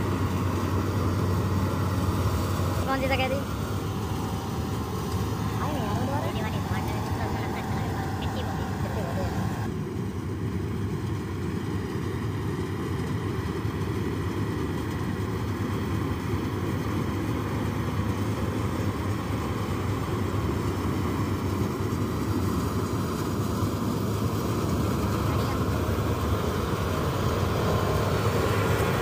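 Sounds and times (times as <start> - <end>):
combine harvester engine and threshing: 0.0 - 29.0.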